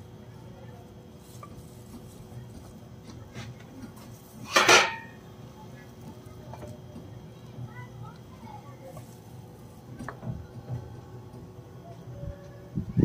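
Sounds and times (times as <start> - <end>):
metal skewers clattering: 4.4 - 5.2.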